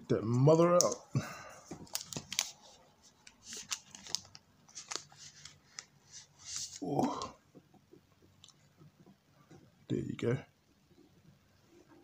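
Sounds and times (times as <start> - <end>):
plastic sleeve crinkling: 1.7 - 7.2.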